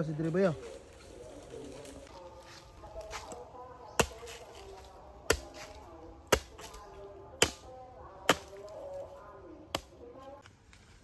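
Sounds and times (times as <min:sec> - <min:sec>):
machete chopping coconut husk: 0:03.0 - 0:09.1, 0:09.7 - 0:10.1.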